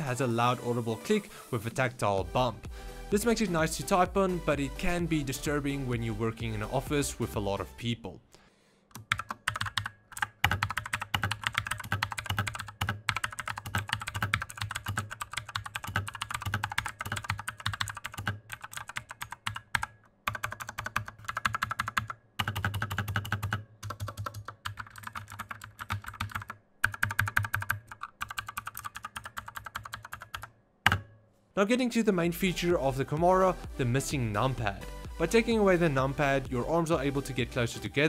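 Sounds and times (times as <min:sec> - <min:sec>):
mechanical keyboard typing: 0:08.9 - 0:31.0.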